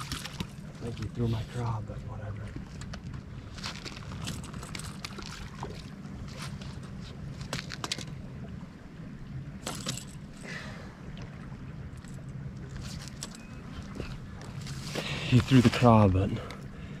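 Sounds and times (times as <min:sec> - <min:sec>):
water splashes: 0:00.0 - 0:08.7.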